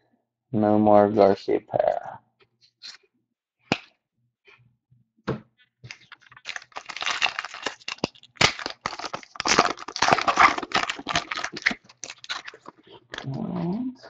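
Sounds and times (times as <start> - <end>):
foil wrapper tearing and crinkling: 5.9 - 13.2.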